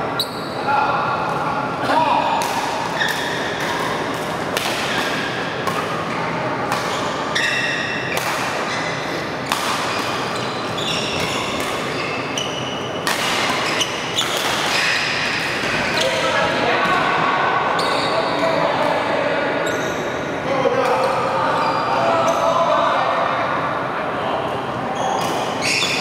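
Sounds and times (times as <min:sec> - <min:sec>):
sports hall background noise: 0:00.0 - 0:26.0
shoes squeaking on court floor: 0:00.1 - 0:00.7, 0:04.9 - 0:16.5, 0:17.7 - 0:18.6, 0:19.6 - 0:20.2, 0:25.0 - 0:26.0
rackets striking shuttlecock: 0:12.9 - 0:15.8.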